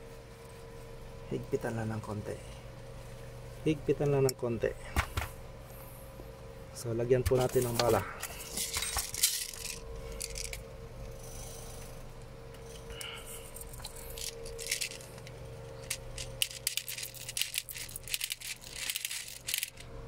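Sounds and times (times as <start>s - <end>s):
plastic bbs clicking and rattling: 8.6s - 10.6s, 13.6s - 19.9s.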